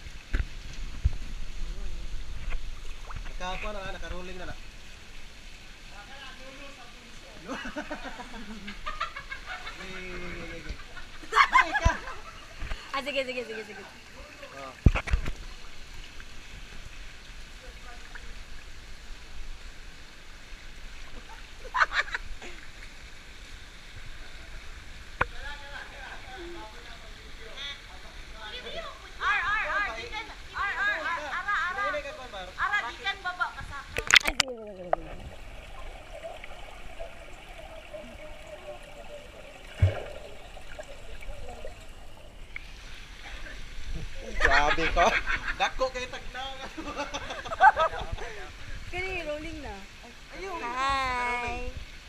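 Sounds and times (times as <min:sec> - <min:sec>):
fountain water splashing into pool: 0:00.0 - 0:30.8, 0:31.4 - 0:46.0
muffled underwater hiss: 0:00.0 - 0:52.0
faint hum: 0:33.8 - 0:44.2
dull thump: 0:39.7 - 0:40.3.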